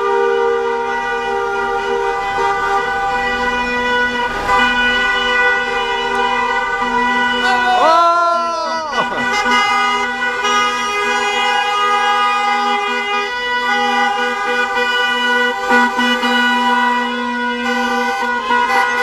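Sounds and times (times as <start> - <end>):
car horns blaring: 0.0 - 19.0.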